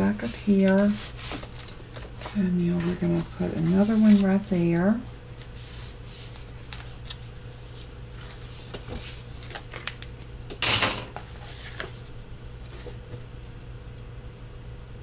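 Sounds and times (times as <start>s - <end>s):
steady low hum: 0.0s - 15.0s
brushing scrape: 0.2s - 4.4s.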